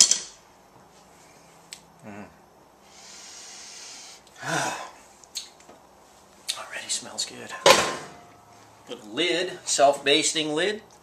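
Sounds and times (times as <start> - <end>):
man sniffing: 2.0 - 5.1
breathy voiced sigh: 3.0 - 5.0.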